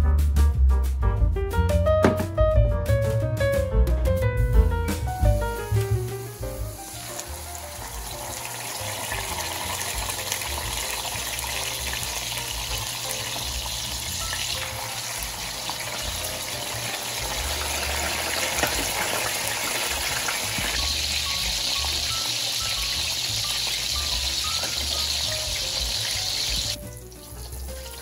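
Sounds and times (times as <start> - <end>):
fish sizzling in oil: 5.6 - 28.0.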